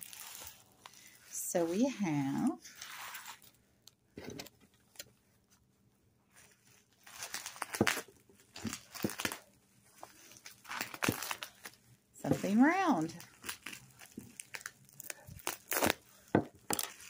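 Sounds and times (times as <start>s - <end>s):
bubble wrap crinkling and tearing: 0.0s - 1.3s, 2.4s - 3.6s, 6.3s - 17.0s.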